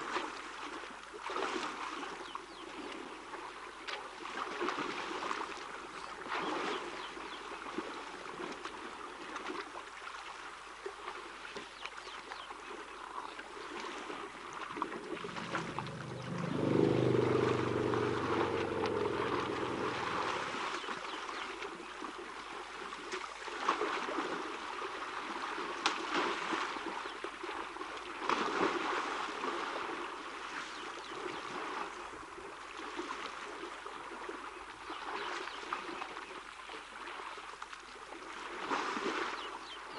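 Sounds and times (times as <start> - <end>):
elephants splashing in water: 0.0 - 39.9
low drone: 15.2 - 21.2.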